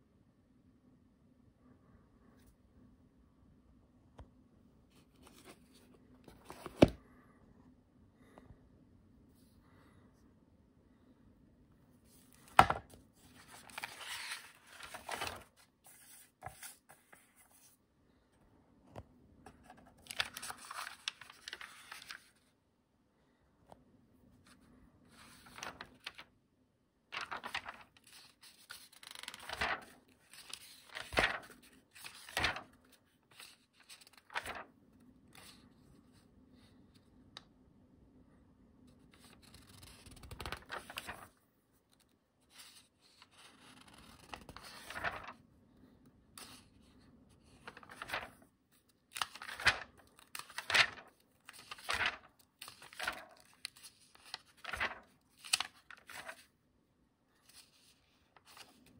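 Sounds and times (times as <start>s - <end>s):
book pages turning: 4.9s - 7.0s, 12.1s - 17.8s, 18.9s - 22.4s, 25.2s - 26.3s, 27.2s - 36.2s, 38.9s - 45.4s, 46.4s - 56.5s, 57.4s - 58.9s.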